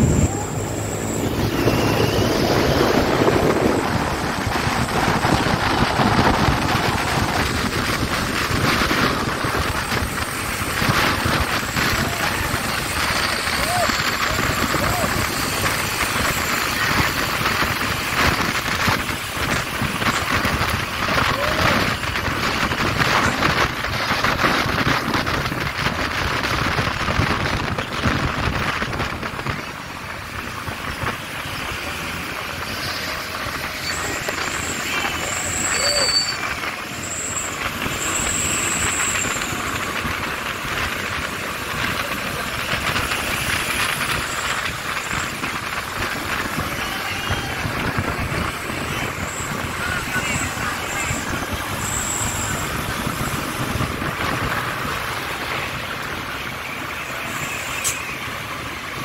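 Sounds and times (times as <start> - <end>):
wind buffeting microphone: 0.0 - 56.6
truck and traffic noise: 0.0 - 59.0
brief high squeals: 0.2 - 3.0, 33.7 - 39.7.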